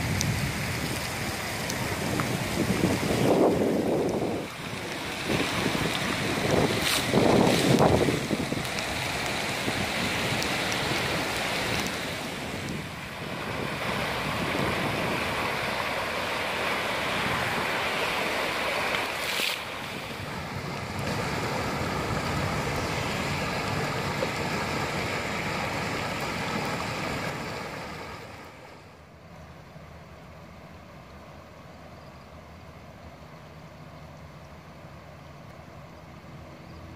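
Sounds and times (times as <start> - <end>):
floodwater rushing: 0.0 - 29.1.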